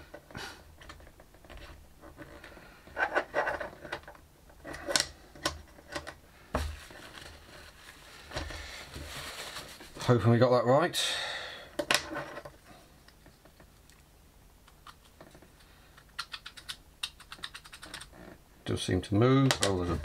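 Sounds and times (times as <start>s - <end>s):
plastic parts clicking and scraping: 0.8s - 9.0s, 14.7s - 18.2s, 19.4s - 20.0s.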